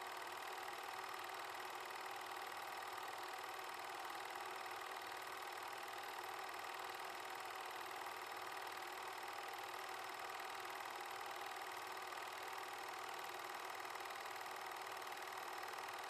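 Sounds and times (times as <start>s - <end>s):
film projector whirring: 0.0s - 16.0s.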